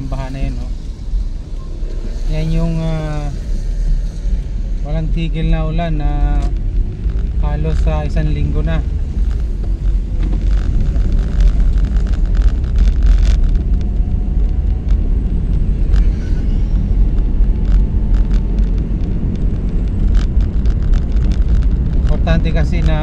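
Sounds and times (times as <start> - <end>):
car engine and tyres rumbling: 0.0 - 23.0.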